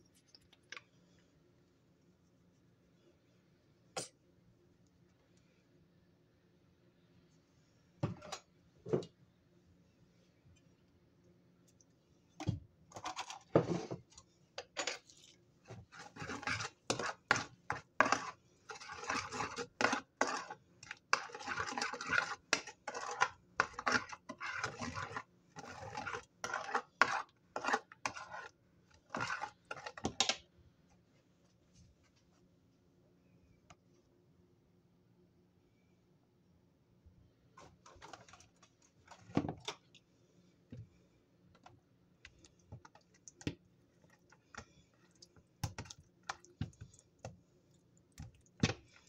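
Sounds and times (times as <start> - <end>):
metal spoon scraping a bowl: 14.8 - 30.2.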